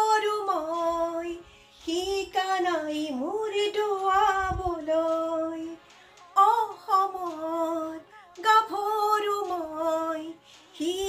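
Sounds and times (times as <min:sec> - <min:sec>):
woman singing slow melody: 0:00.0 - 0:11.0.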